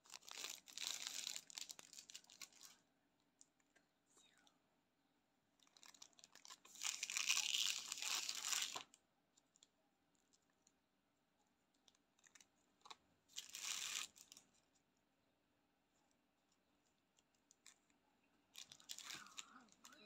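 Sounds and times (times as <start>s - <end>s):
plastic wrapper crinkling: 0.0s - 2.8s, 5.6s - 10.7s, 11.8s - 14.6s, 18.5s - 20.0s.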